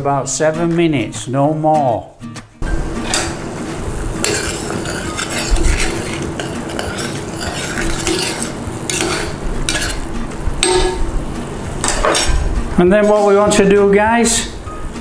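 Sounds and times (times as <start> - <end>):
metal spoon scraping saucepan: 3.0 - 3.4, 4.0 - 11.1, 11.8 - 13.4.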